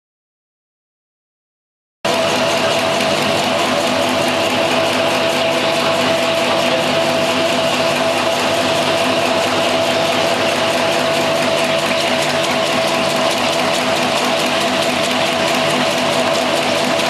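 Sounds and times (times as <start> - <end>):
eggs rattling in machine: 2.1 - 17.0
machine humming: 2.1 - 17.0.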